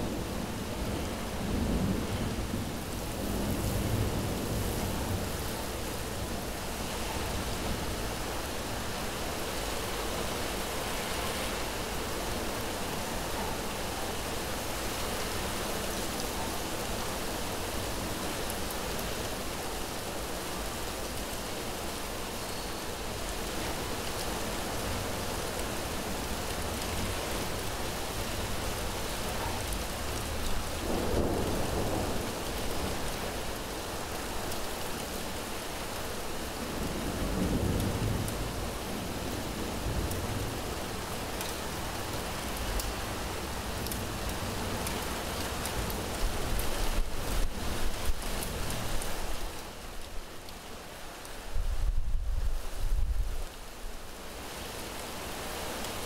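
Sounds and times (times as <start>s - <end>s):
heavy rain falling: 0.0s - 56.0s
low rolls of thunder: 30.8s - 33.0s.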